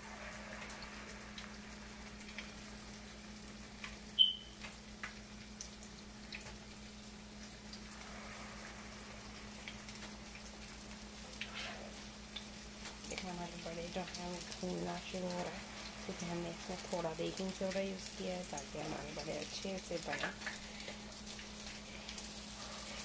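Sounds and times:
food frying in hot oil: 0.0s - 23.0s.

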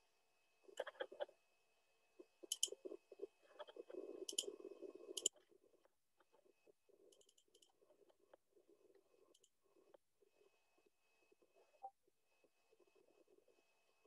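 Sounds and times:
computer mouse clicks: 2.5s - 2.8s, 4.3s - 4.5s, 5.1s - 5.3s.

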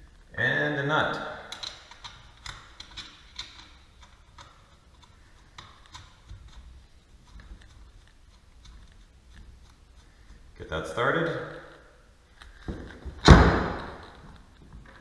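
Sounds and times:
nut threading onto bolt clicks: 1.5s - 6.8s.

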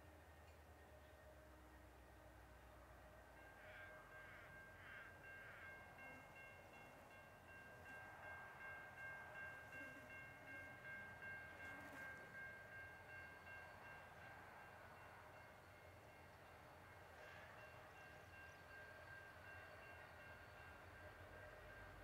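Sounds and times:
distant locomotive horn: 0.7s - 6.4s, 9.6s - 13.1s, 16.8s - 22.0s.

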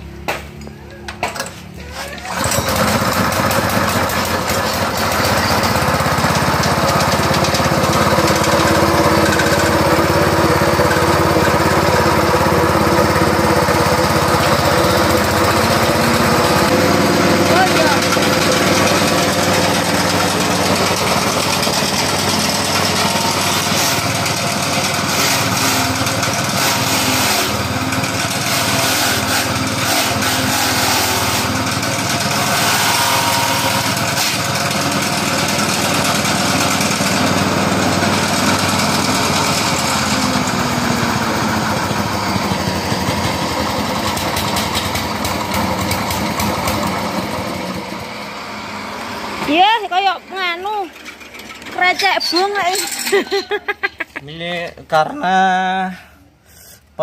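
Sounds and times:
small petrol engine: 1.4s - 54.2s
chopper crackling rattles: 2.3s - 25.1s.

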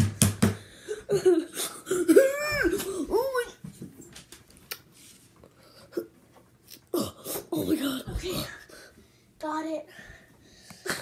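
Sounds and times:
boy laughing: 0.9s - 3.2s.

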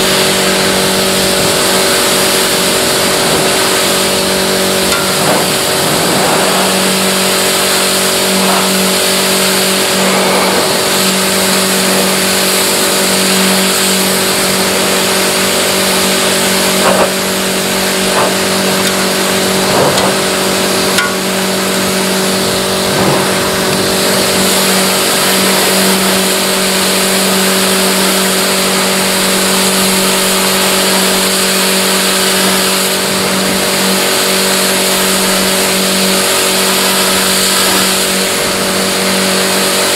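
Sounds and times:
loud even hiss: 0.0s - 31.6s
motor running steadily: 0.0s - 39.9s.

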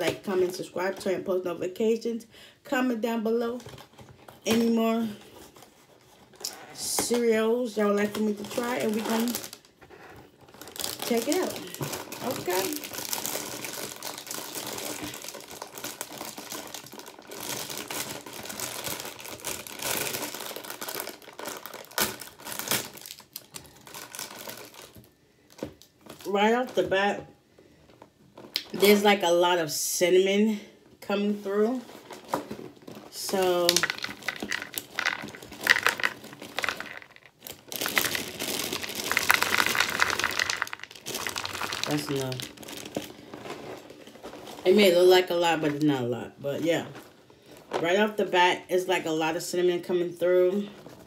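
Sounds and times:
plastic bag crinkling: 3.4s - 26.8s, 31.6s - 48.2s
cereal pouring into bowl: 33.4s - 42.7s.

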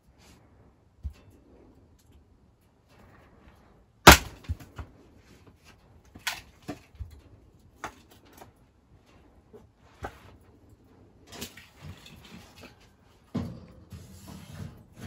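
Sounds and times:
firewood pieces knocking together: 4.1s - 4.9s.

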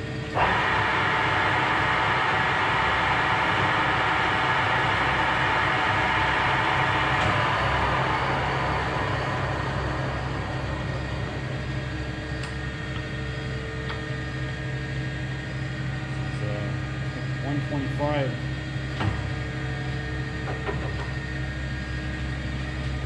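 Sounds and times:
low machine drive hum: 0.0s - 23.0s
lathe chuck spinning down: 0.3s - 13.2s.

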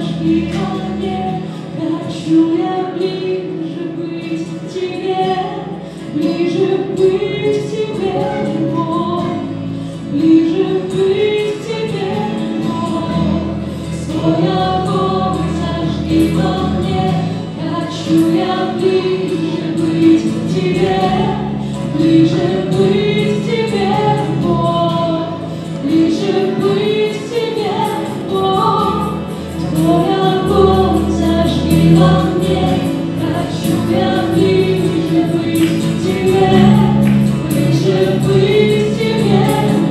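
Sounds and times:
group singing: 0.0s - 9.5s, 10.1s - 39.9s
acoustic guitar: 0.0s - 39.9s
electric bass guitar: 0.0s - 39.9s
keyboard: 0.0s - 39.9s.

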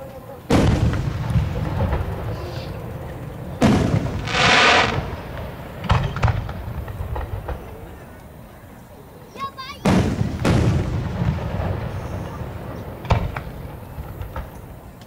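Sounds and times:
fireworks bursting with echoes: 0.4s - 8.8s, 9.5s - 15.0s
firework hiss: 0.5s - 8.0s.

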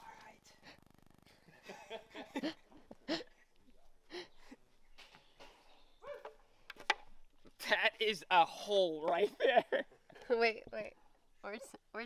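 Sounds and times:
person murmuring and breathing: 4.0s - 4.7s.

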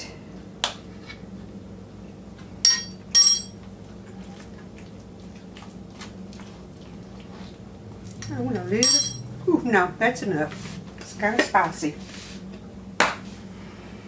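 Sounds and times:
low steady hum: 0.0s - 14.0s
spoon clinking against bowl: 8.2s - 9.3s.

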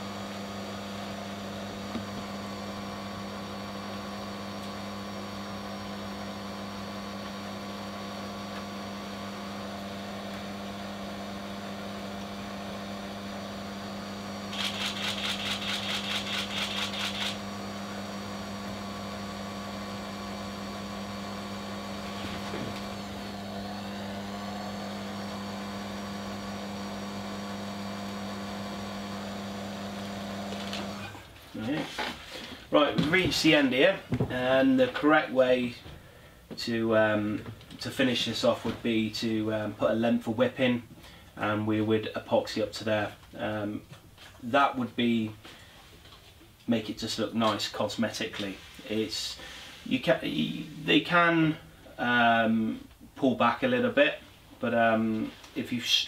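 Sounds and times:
electric motor hum: 0.0s - 33.8s.

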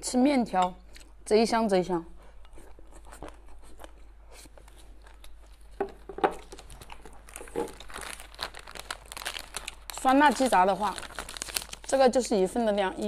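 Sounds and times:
person chewing food: 2.2s - 9.9s
plastic packets crinkling: 4.6s - 13.0s.

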